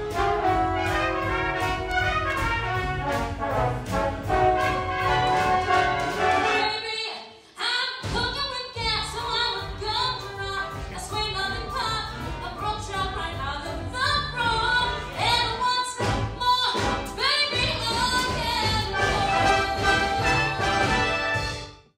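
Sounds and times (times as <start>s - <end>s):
orchestra accompaniment: 0.0s - 6.8s, 14.1s - 21.9s
woman singing a show tune: 6.4s - 20.8s.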